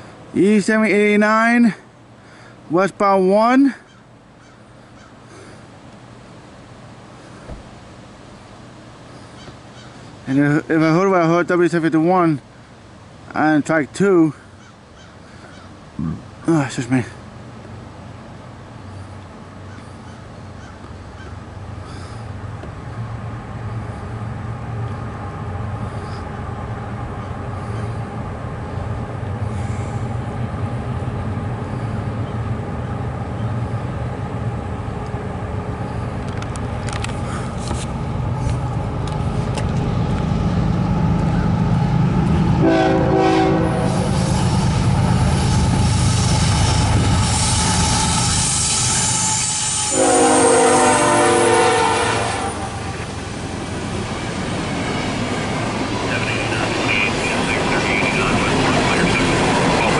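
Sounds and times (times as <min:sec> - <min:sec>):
diesel locomotive engine rumble: 0:00.0 - 0:59.9
train wheel noise and clatter: 0:18.8 - 0:59.9
locomotive horn blast: 0:42.2 - 0:53.2.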